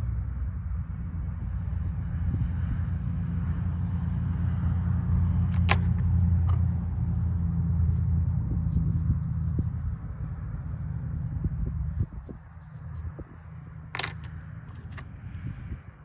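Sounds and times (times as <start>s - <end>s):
stone knocking on stone: 13.9s - 15.0s.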